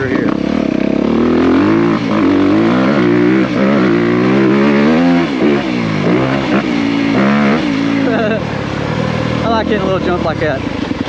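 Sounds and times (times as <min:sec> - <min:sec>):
motorbike engine revving: 0:00.0 - 0:11.0.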